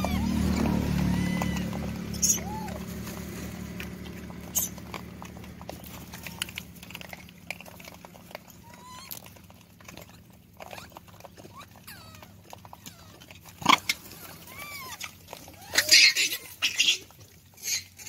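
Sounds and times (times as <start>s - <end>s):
monkey squeaky calls: 0.0s - 2.8s, 4.5s - 4.8s, 8.6s - 9.3s, 10.6s - 18.0s
monkeys scratching on dirt: 0.0s - 18.0s.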